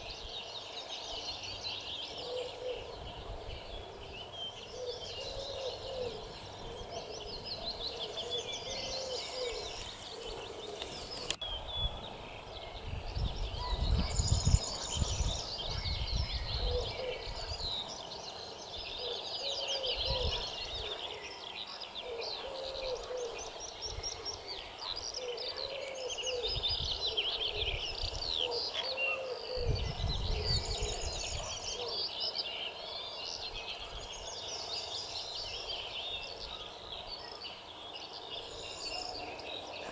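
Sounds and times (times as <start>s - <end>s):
songbirds chirping and trilling: 0.0s - 39.9s
wind rumbling on microphone: 2.6s - 4.4s, 5.1s - 17.8s, 19.8s - 21.0s, 26.3s - 28.6s, 29.5s - 31.9s.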